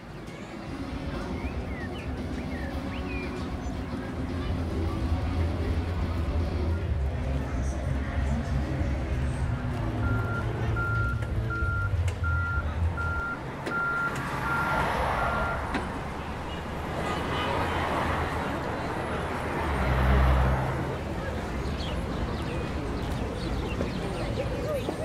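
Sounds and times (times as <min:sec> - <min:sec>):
outdoor noise: 0:00.0 - 0:25.0
low engine rumble: 0:00.4 - 0:25.0
reversing alarm beeping: 0:10.0 - 0:15.6.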